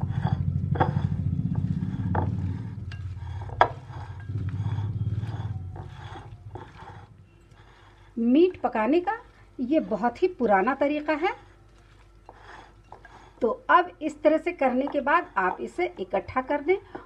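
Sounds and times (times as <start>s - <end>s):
low rumble: 0.0s - 8.7s
hands kneading wet meat: 0.6s - 7.9s, 8.6s - 13.4s.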